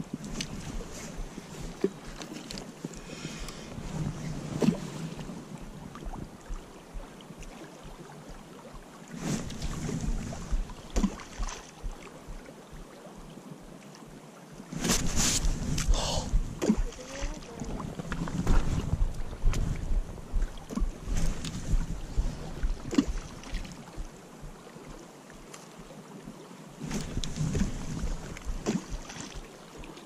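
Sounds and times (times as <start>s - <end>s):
wind on microphone: 0.0s - 2.2s, 2.8s - 13.3s, 14.7s - 25.1s, 26.2s - 30.0s
river running over gravel: 14.7s - 25.8s.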